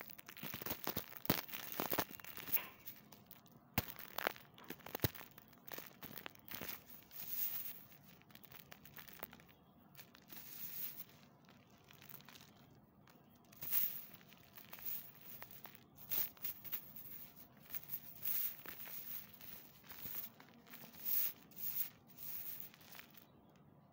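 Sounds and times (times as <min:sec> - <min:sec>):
chalk crunching between fingers: 0:00.2 - 0:23.3.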